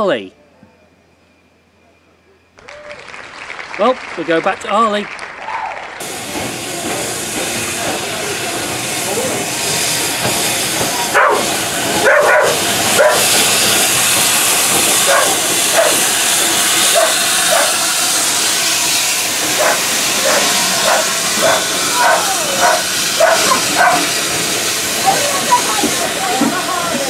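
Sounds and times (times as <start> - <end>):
locomotive steam hissing: 6.0 - 27.0
train carriages rolling: 6.0 - 27.0
dog barking: 11.1 - 13.3, 15.1 - 16.0, 16.9 - 17.7, 19.6 - 24.1.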